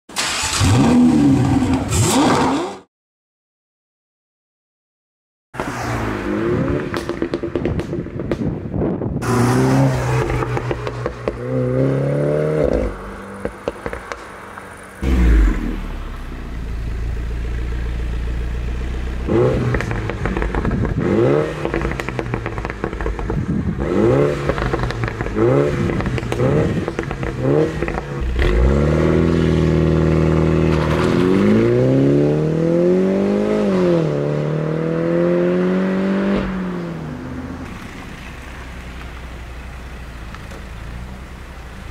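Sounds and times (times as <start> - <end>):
exhaust pops and crackles: 6.9 - 9.0, 10.2 - 11.5, 12.7 - 15.0, 19.6 - 28.2.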